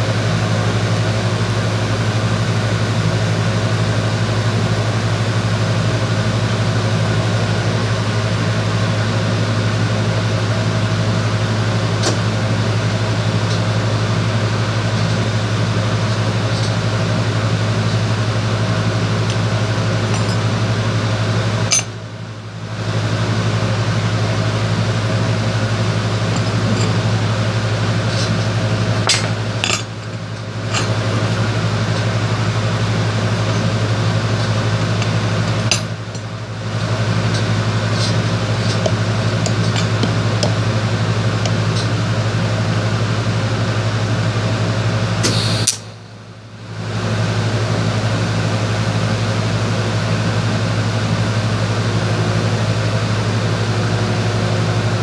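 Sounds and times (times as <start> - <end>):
welding machine humming: 14.9 - 46.0.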